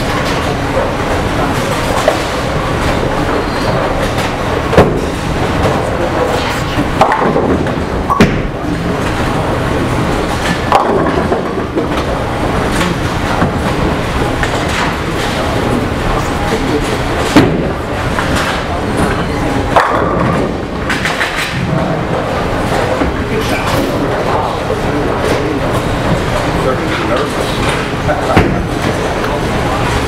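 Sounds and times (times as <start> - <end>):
bowling balls rolling: 0.0 - 30.0
balls hitting pins: 6.8 - 9.1, 10.2 - 15.9, 19.6 - 23.2.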